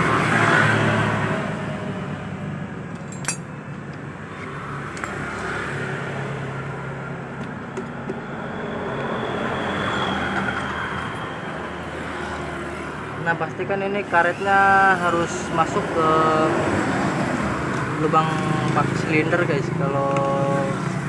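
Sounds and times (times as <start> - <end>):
road traffic noise: 0.0 - 21.0
socket wrench metal clinks: 3.0 - 3.5, 4.9 - 5.6.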